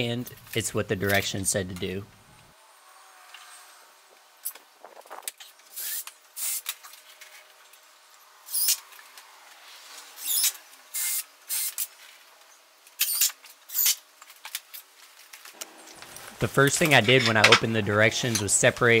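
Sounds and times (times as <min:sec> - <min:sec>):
cordless drill boring into wood: 0:10.2 - 0:11.8.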